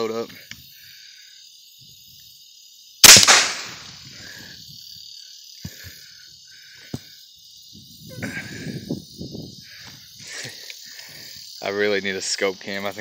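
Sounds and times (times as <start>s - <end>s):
insects chirring: 0.0s - 13.0s
rifle shot echo: 3.0s - 3.9s.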